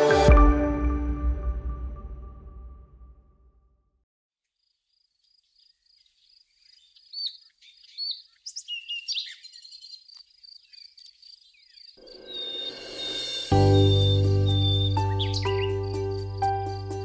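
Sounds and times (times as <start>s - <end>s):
birds chirping and whistling: 6.1s - 16.2s.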